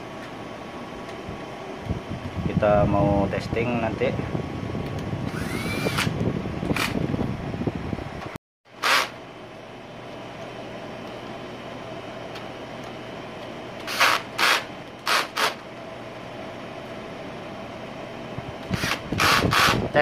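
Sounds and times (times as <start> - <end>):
steady noisy hum: 0.0 - 20.0
drill-driver whirring: 5.3 - 7.0, 8.8 - 9.2, 13.8 - 15.6, 18.6 - 19.9.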